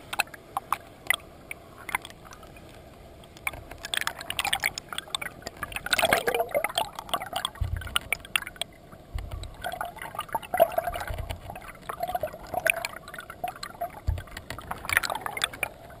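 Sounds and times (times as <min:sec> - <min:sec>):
underwater stream gurgling: 0:00.0 - 0:16.0.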